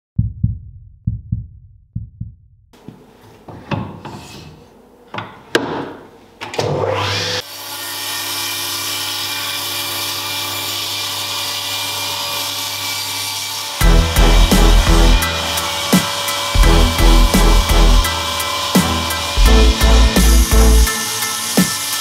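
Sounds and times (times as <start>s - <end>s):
table saw cutting wood: 6.6s - 22.0s.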